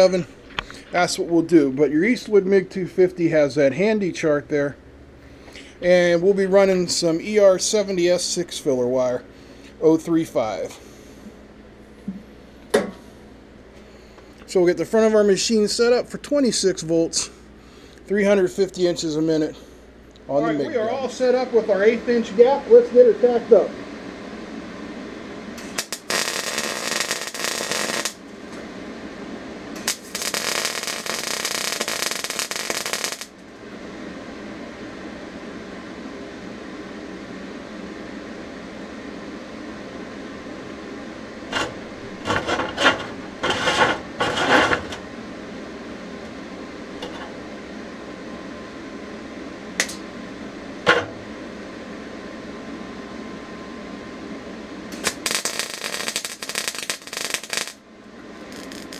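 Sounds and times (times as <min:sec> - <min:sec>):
welding arc crackling and hissing: 0:00.0 - 0:04.2, 0:25.6 - 0:28.7, 0:29.7 - 0:33.5, 0:41.5 - 0:45.0, 0:49.8 - 0:50.0, 0:54.9 - 0:57.8, 0:58.4 - 0:58.9.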